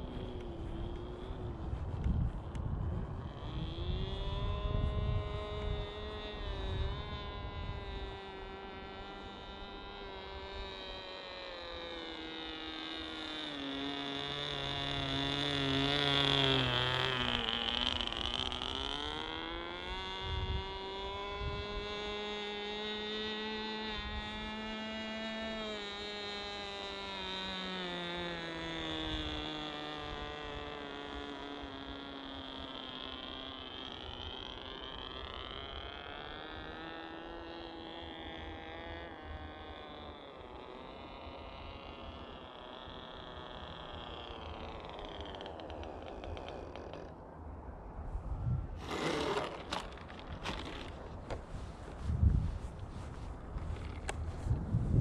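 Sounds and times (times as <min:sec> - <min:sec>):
model airplane motor droning: 0:00.0 - 0:55.0
wind rumbling on microphone: 0:00.0 - 0:55.0.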